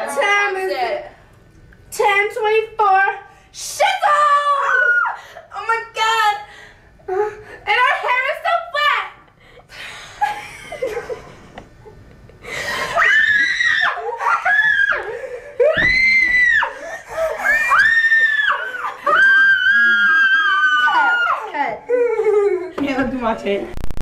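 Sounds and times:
girls screaming: 3.9s - 5.2s, 12.8s - 21.8s.

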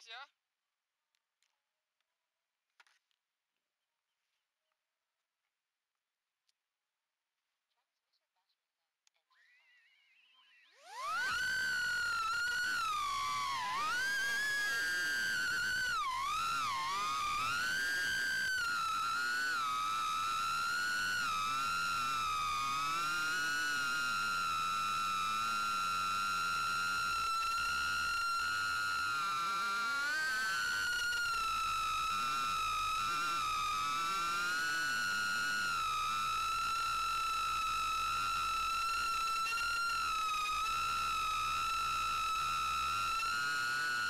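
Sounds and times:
drone propellers whining: 10.8s - 44.0s.

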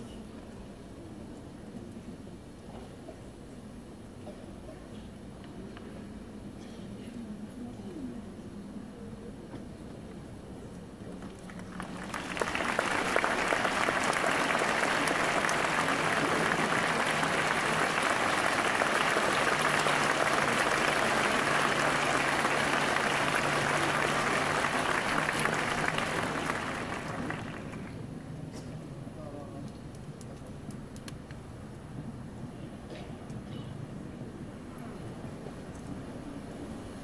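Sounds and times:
audience applauding: 11.2s - 28.1s.

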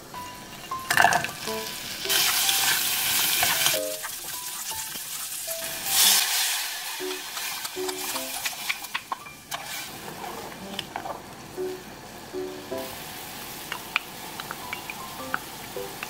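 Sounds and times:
garlic sizzling in hot oil: 0.1s - 16.0s
sauce hissing in hot oil: 1.6s - 10.6s, 12.8s - 16.0s
wooden spatula stirring: 2.1s - 6.0s.

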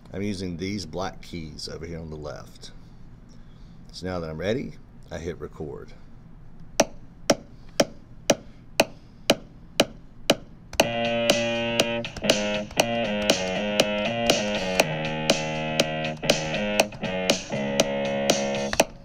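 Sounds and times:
metronome clicking: 9.8s - 19.0s
distorted fuzz bass synth: 10.8s - 18.8s.

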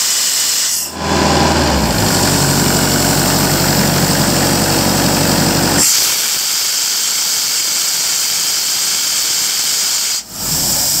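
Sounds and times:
diesel engine running: 0.7s - 6.2s.

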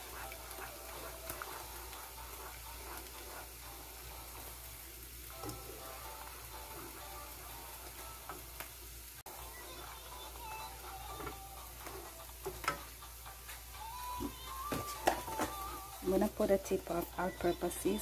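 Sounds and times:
wooden spoon stirring sauce: 0.0s - 4.8s, 9.8s - 12.8s.

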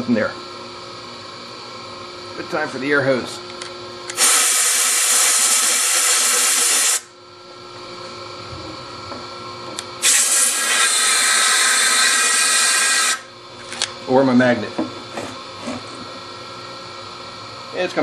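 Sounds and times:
compressed-air blow gun hissing: 4.2s - 7.1s, 10.0s - 13.2s.

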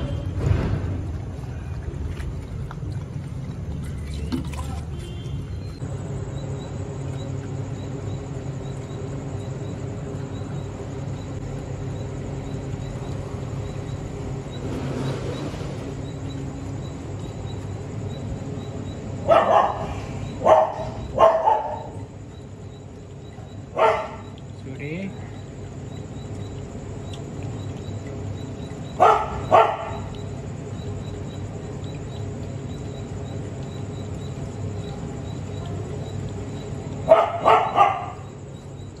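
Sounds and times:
steady low hum: 0.0s - 39.0s
dog barking: 19.2s - 22.0s, 23.7s - 24.3s, 29.0s - 30.1s, 37.0s - 38.3s.

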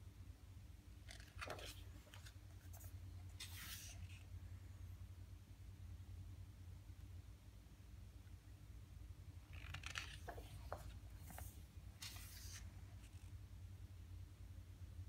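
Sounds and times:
book page turning: 1.1s - 4.2s, 9.5s - 13.3s.

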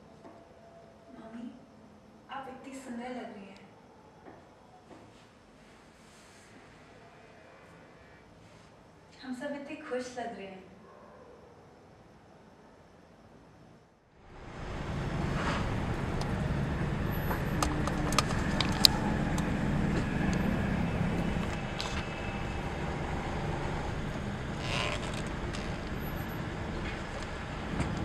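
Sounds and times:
car engine and road noise: 14.2s - 28.0s.

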